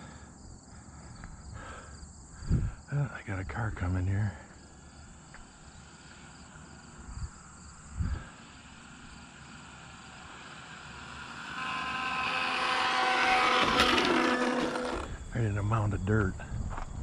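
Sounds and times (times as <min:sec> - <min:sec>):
vehicle approaching with whine: 0:05.8 - 0:15.4.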